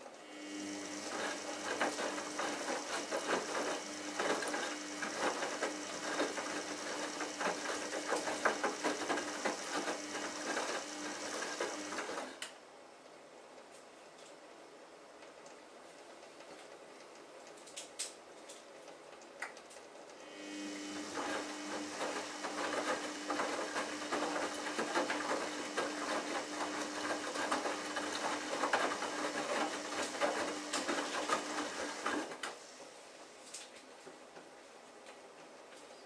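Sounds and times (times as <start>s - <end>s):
washing machine motor hum: 0.0s - 12.4s, 20.2s - 33.0s.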